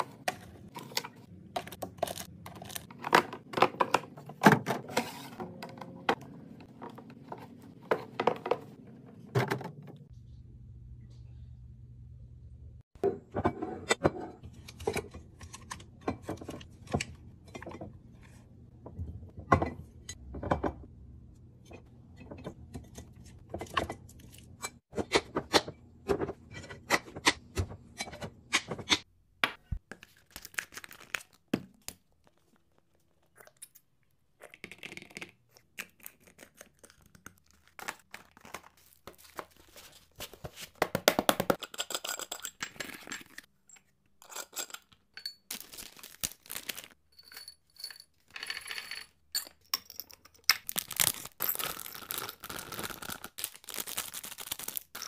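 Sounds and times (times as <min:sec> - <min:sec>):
glass containers clicking and knocking: 0:41.3 - 0:45.7, 0:47.1 - 0:50.7.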